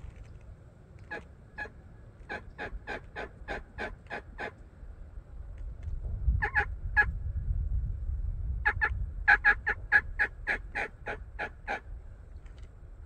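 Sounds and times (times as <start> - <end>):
turkey yelping: 1.1 - 4.6, 8.7 - 11.9
low rumble: 4.8 - 9.3.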